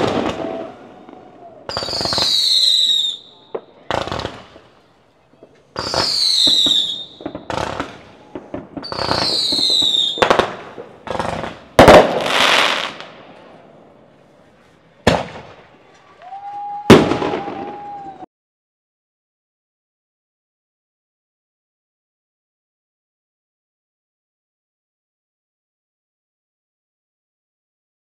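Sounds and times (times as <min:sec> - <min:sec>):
whistling rockets: 0:00.0 - 0:13.5, 0:15.0 - 0:18.3
firework crackling: 0:00.0 - 0:13.7
firework bangs: 0:00.0 - 0:13.8, 0:15.0 - 0:18.2.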